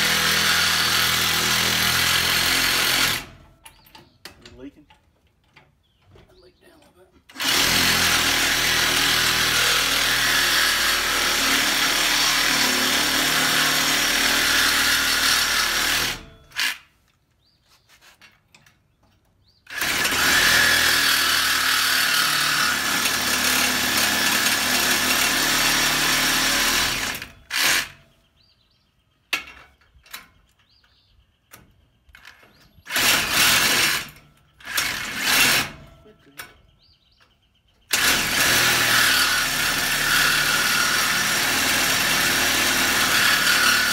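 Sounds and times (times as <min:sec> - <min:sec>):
reciprocating saw cutting steel: 0:19.7 - 0:28.0, 0:32.9 - 0:35.9.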